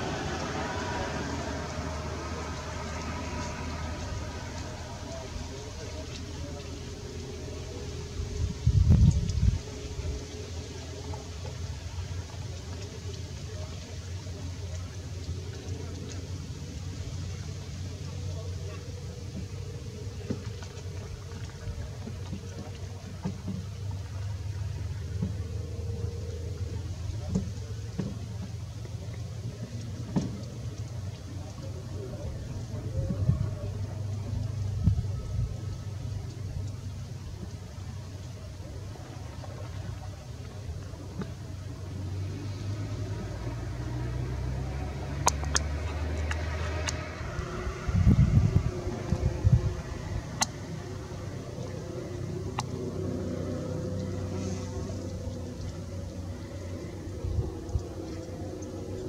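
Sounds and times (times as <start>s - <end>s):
boat engine low drone: 0.0s - 59.0s
faint clicks: 26.6s - 32.0s, 36.2s - 41.8s, 45.2s - 47.4s, 50.2s - 59.0s.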